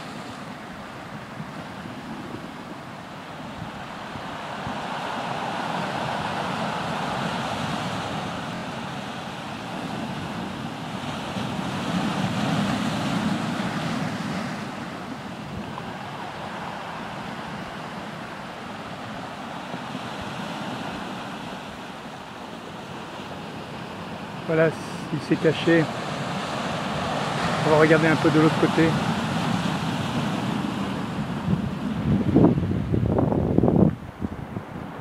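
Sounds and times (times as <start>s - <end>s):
sea surf washing over boulders: 0.0s - 35.0s.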